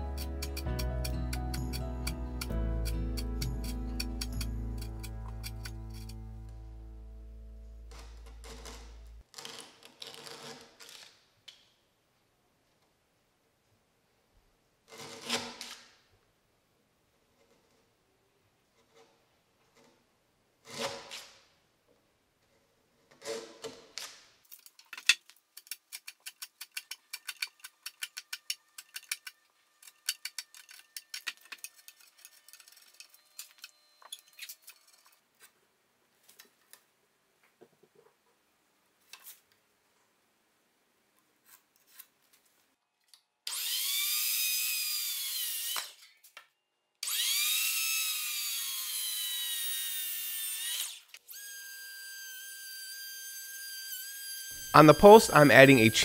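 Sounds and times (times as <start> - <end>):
chisel paring wood: 0.0 - 6.2
circular saw cutting timber: 0.0 - 6.2, 43.5 - 46.0, 47.0 - 56.0.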